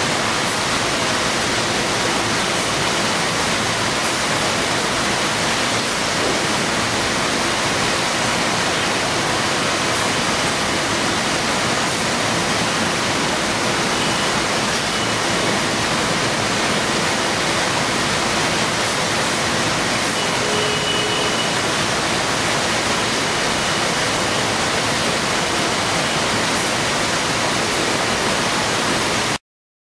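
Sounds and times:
packing line machinery noise: 0:00.0 - 0:29.3
faint short tone: 0:20.2 - 0:21.6.

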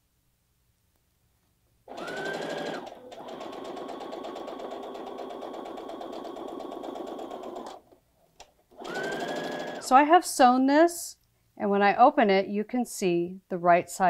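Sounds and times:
sewing machine stitching: 0:01.9 - 0:07.8, 0:08.7 - 0:10.0.

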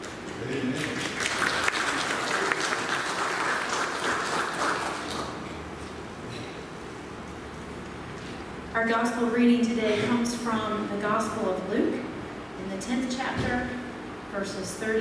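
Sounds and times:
congregation clapping: 0:00.0 - 0:05.5.

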